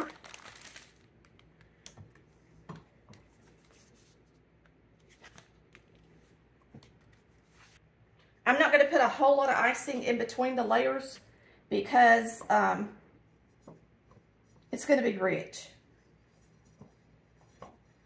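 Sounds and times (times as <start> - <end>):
faint clicks and taps: 1.2 - 3.4, 16.7 - 17.8.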